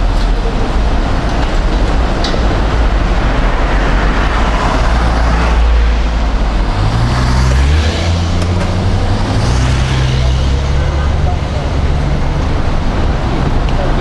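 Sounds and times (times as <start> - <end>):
delivery truck engine hum: 0.0 - 14.0
road traffic passing: 0.0 - 14.0.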